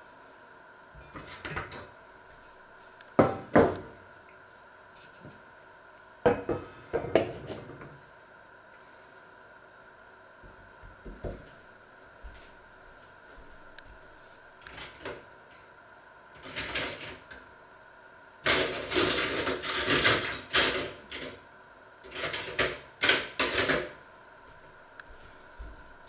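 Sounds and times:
utensils and dishes clattering: 16.4s - 17.2s, 18.5s - 21.4s.

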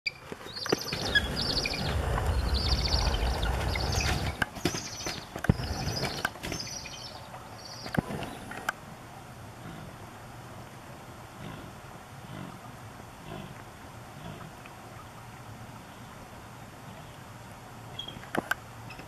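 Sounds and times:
eagles chittering calls: 0.1s - 8.6s
low rumble: 0.8s - 17.8s.

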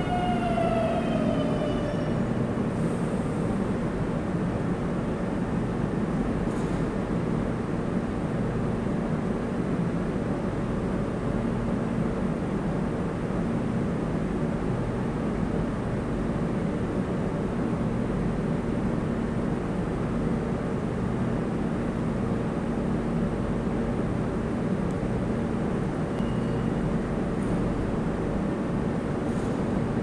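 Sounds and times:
faint high tone: 0.0s - 2.4s, 26.2s - 26.9s
metro train humming at platform: 0.0s - 30.0s.

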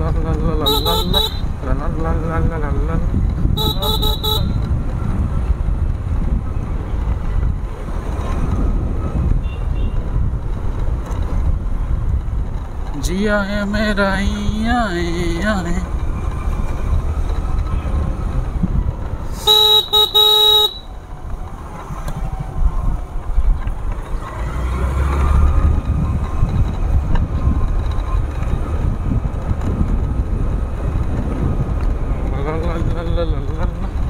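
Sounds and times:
motorcycle engine rumble: 0.0s - 34.0s
wind: 0.0s - 34.0s
motorcycle horn beeps: 0.6s - 1.5s, 3.6s - 4.6s, 9.4s - 10.0s, 19.4s - 20.9s.

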